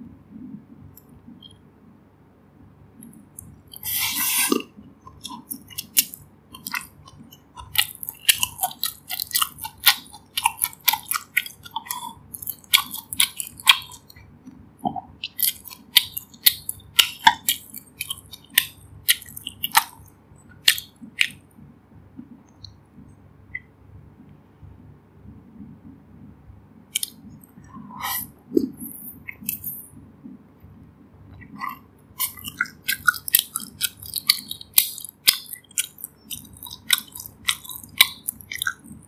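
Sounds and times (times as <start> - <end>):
wet chewing: 3.0 - 21.5, 26.9 - 29.9, 31.3 - 39.0
spoonful going into mouth: 31.4 - 39.0.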